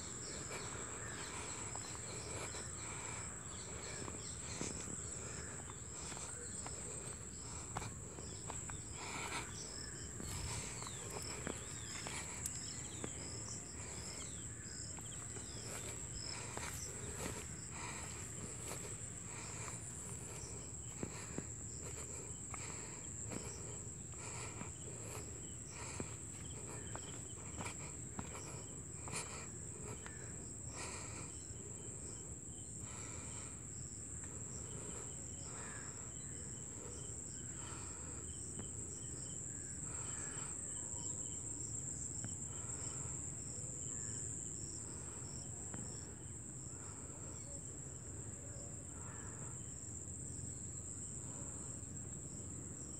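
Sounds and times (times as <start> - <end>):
insects trilling: 0.0 - 52.9.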